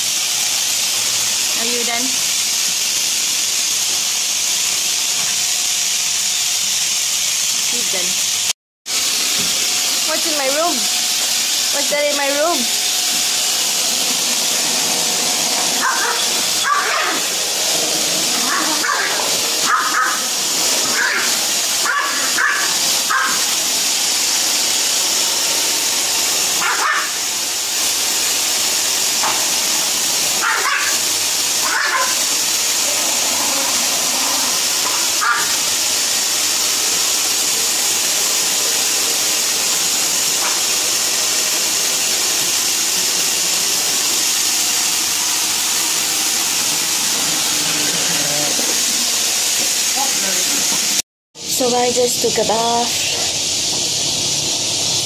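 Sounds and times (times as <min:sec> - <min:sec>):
vacuum cleaner running: 0:00.0 - 0:55.0
dog barking: 0:15.8 - 0:17.3, 0:18.4 - 0:23.5, 0:26.6 - 0:27.2, 0:30.4 - 0:31.0, 0:31.6 - 0:32.2, 0:33.6 - 0:35.6, 0:40.4 - 0:40.6.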